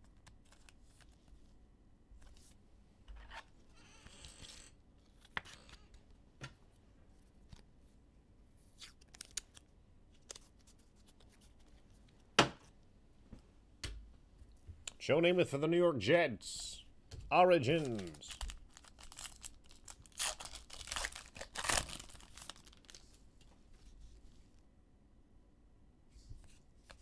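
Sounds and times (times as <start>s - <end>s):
card sleeves rustling: 17.3s - 24.6s.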